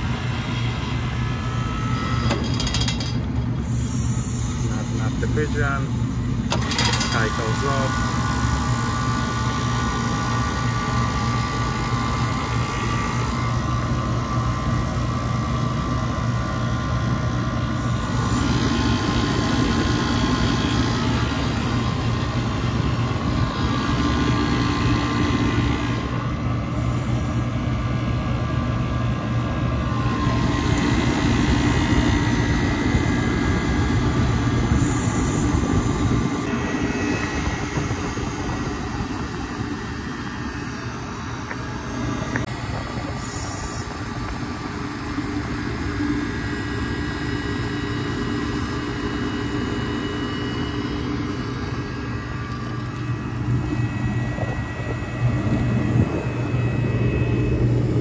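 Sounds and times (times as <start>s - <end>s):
compressor low hum: 0.0s - 58.0s
unit rushing noise: 29.5s - 58.0s.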